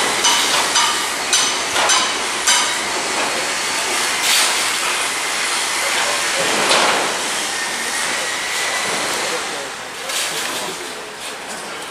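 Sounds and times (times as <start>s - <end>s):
train wheels clunking over rail joints: 0.0s - 5.4s, 6.1s - 7.4s
rumble of moving train: 0.0s - 11.9s.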